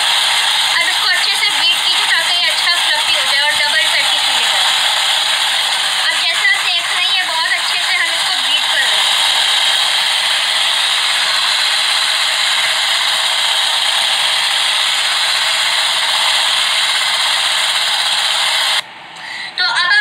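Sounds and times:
electric whisk whirring and rattling: 0:00.0 - 0:18.8.

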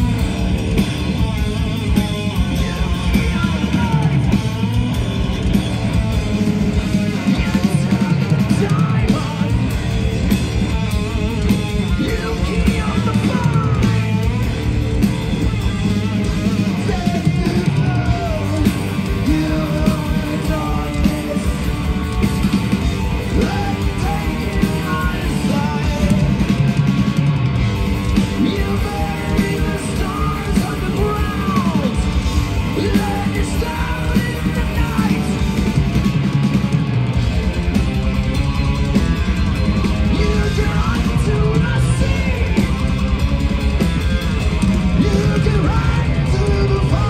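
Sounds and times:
live heavy metal band: 0:00.0 - 0:47.0
sung and yelled vocals: 0:01.2 - 0:05.5, 0:06.3 - 0:10.1, 0:10.8 - 0:14.6, 0:15.7 - 0:27.0, 0:27.9 - 0:36.1, 0:40.0 - 0:43.1, 0:44.8 - 0:47.0.

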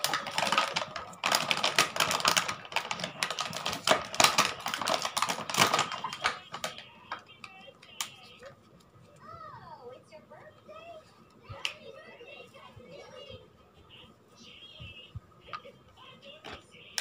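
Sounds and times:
plastic toy cookware clattering: 0:00.0 - 0:06.8.

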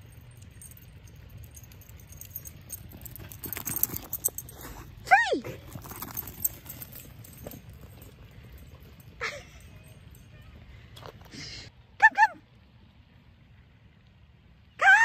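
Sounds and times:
collar tags jingling: 0:00.0 - 0:11.5.

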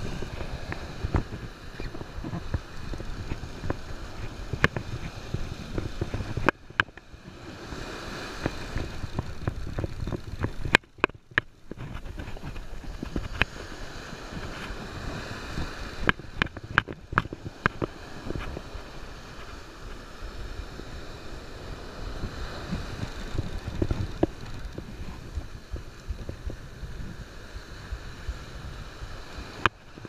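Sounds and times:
breaking surf: 0:00.0 - 0:30.0
wind buffeting microphone: 0:00.0 - 0:30.0
fishing reel clicks and knocks: 0:08.3 - 0:12.1, 0:22.8 - 0:26.3.

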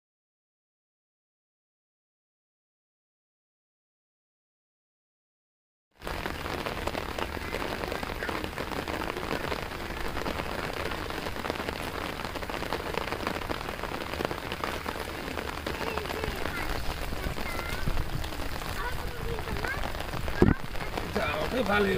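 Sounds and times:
rain falling on water: 0:06.0 - 0:21.9.

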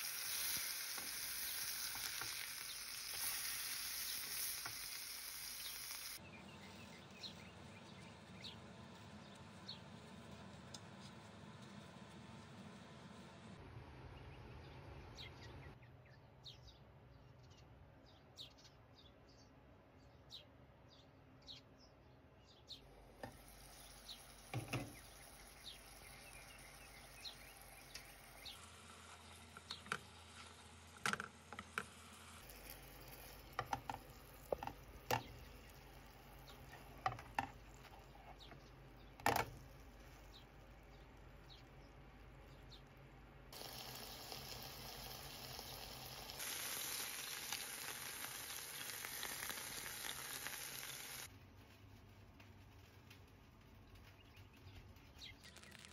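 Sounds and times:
fat crackling and popping: 0:00.0 - 0:06.2, 0:22.9 - 0:55.9
meat patties frying in oil: 0:00.0 - 0:06.2, 0:22.9 - 0:38.4, 0:43.5 - 0:51.7.

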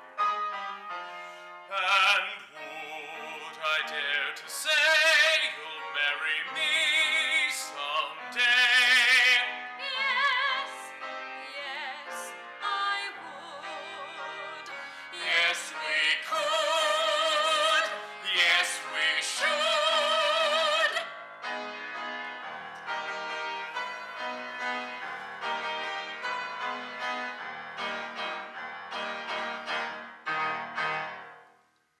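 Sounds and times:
instrumental accompaniment: 0:00.0 - 0:31.7
man and woman singing opera: 0:01.7 - 0:10.9, 0:11.6 - 0:21.1.

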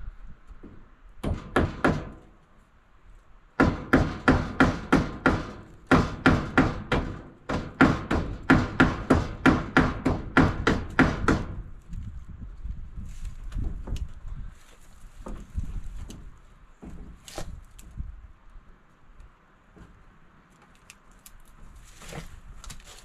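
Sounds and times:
hammer striking wooden wall: 0:00.6 - 0:02.4, 0:03.6 - 0:11.7.

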